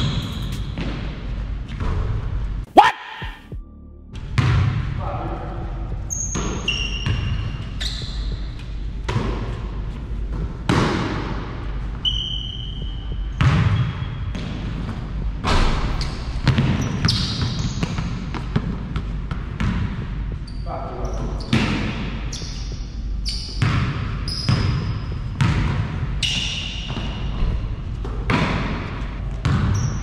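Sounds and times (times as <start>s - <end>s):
sneaker squeaks on floor: 6.1s - 8.8s, 11.9s - 14.6s, 15.9s - 18.2s, 20.4s - 25.5s, 26.2s - 27.5s, 29.4s - 30.0s
basketball bouncing on court: 6.1s - 9.6s, 10.3s - 20.5s, 21.1s - 30.0s.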